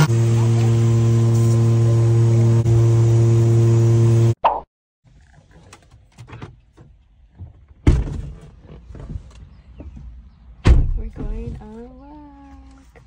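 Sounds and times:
car door thump: 0:07.8 - 0:08.3, 0:10.6 - 0:11.6.

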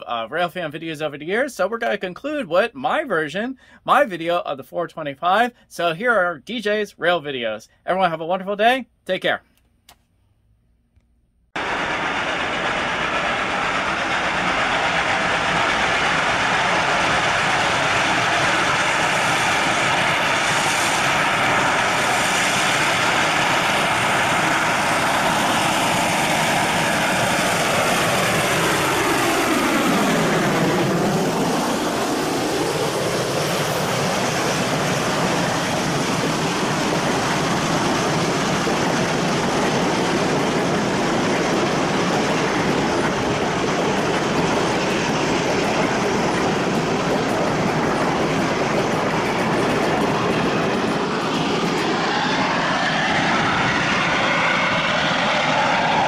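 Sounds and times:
passenger cars rolling on rails: 0:11.6 - 0:56.0
steam locomotive passing: 0:11.6 - 0:56.0.

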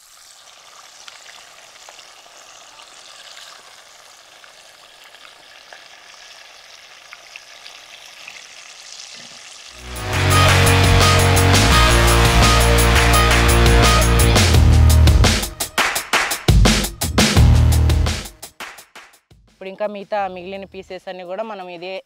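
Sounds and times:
chicken sizzling in hot oil: 0:00.0 - 0:09.9
faint crackles: 0:00.1 - 0:09.8
loud music with drums: 0:09.8 - 0:20.2.

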